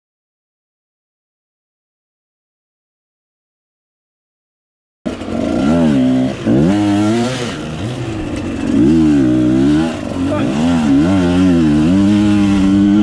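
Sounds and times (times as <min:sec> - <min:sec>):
dirt bike engine revving: 0:05.1 - 0:13.0.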